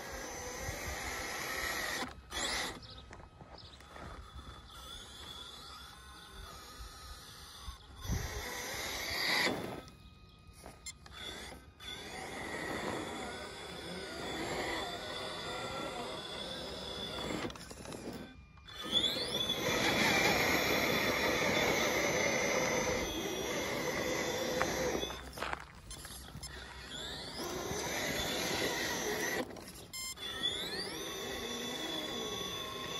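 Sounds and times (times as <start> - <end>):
rc car motor whining: 0.0 - 32.9.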